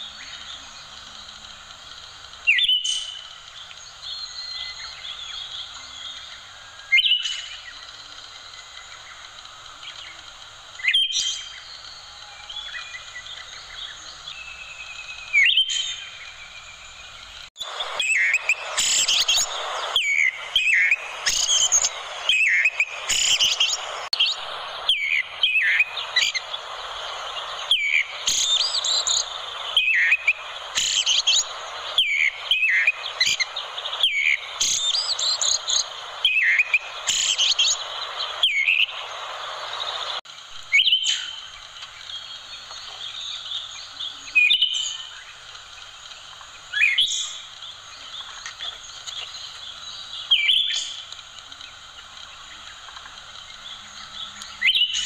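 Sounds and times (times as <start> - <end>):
thrush singing whistled phrases: 10.8 - 41.4.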